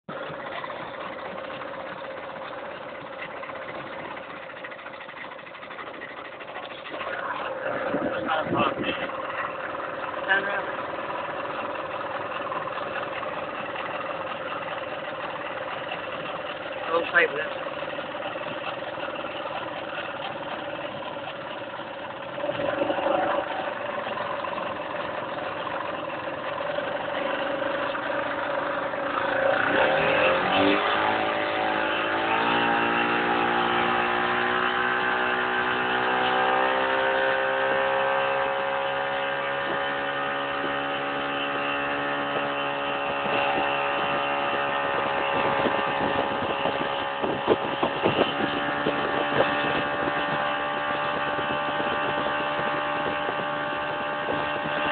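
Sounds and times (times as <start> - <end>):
boat engine running: 0.0 - 54.9
water: 0.0 - 54.9
wind noise: 6.9 - 9.2, 39.3 - 54.9.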